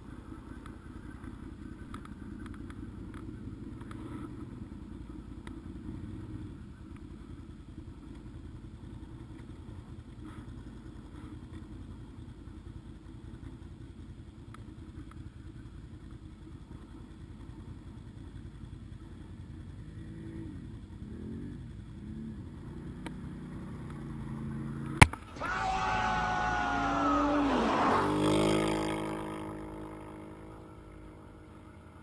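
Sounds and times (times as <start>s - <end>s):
quad bike engines idling: 0.0s - 32.0s
quad engine running under load: 0.0s - 32.0s
engine revving: 20.0s - 32.0s.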